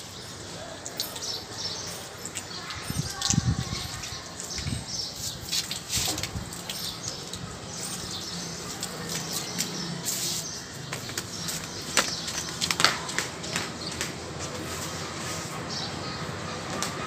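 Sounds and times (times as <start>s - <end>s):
water splashing from garden hose: 0.0s - 17.0s.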